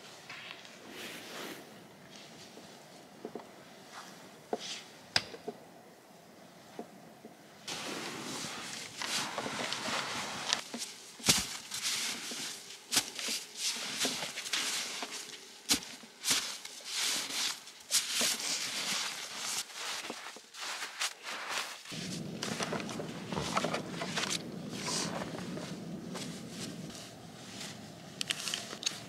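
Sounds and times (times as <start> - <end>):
crunching and scraping in snow: 7.7 - 29.0.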